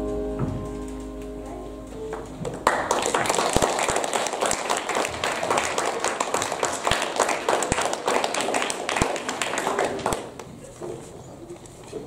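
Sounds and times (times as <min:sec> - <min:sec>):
low thumps: 0:00.0 - 0:02.6
audience clapping: 0:02.1 - 0:10.5.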